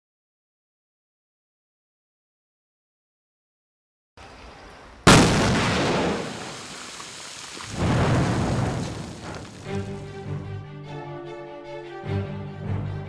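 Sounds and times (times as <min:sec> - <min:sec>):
rock blasting explosions: 0:05.1 - 0:10.1
music: 0:09.7 - 0:13.0.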